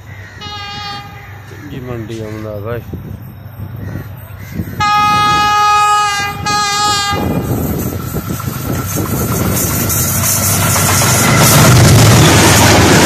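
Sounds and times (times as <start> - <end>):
train running rumble: 0.0 - 13.0
locomotive horn blast: 0.4 - 1.4, 4.8 - 7.7.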